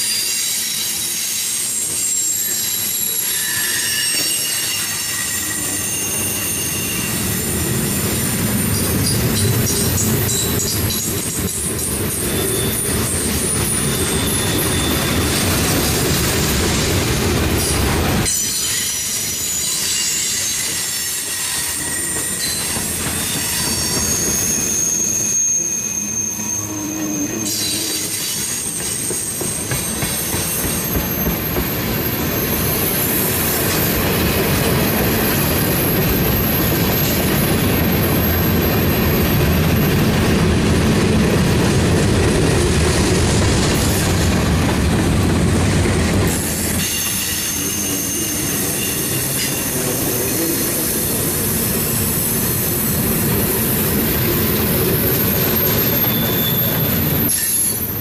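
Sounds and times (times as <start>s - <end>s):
high-pitched wheel squeals: 0.0s - 15.6s, 18.2s - 33.6s, 46.3s - 52.3s, 54.2s - 58.0s
train wheels rumbling on rail: 0.0s - 58.0s.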